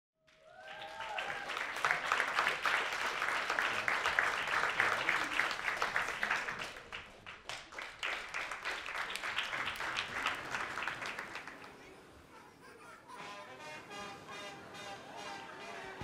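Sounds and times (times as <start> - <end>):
audience applauding: 0.3 - 12.0.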